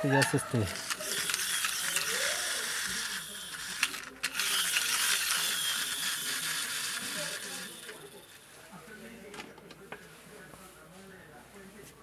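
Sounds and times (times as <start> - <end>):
toy car friction motor whirring: 0.0 - 8.4
toy click: 0.1 - 8.0.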